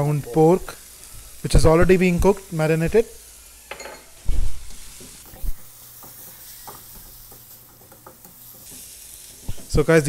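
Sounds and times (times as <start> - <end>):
food sizzling in a wok: 0.0 - 10.0
spatula scraping a pan: 4.6 - 9.7.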